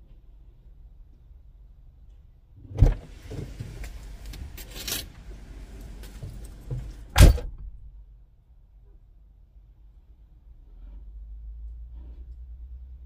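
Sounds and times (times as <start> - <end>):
outside noise: 0.0 - 13.0
car door shutting thud: 2.7 - 4.6, 5.6 - 7.7
car door opening clunk: 2.7 - 7.7
rustling with small clicks: 3.2 - 7.1.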